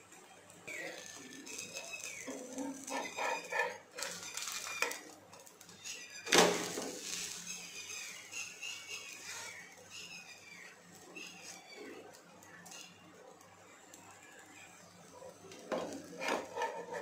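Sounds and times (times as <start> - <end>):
faint high chirps: 7.1 - 13.1.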